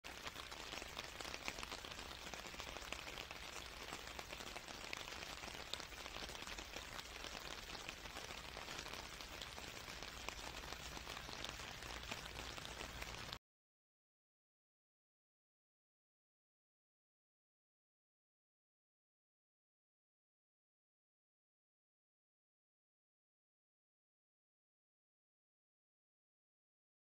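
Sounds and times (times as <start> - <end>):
steady rain falling: 0.0 - 13.4.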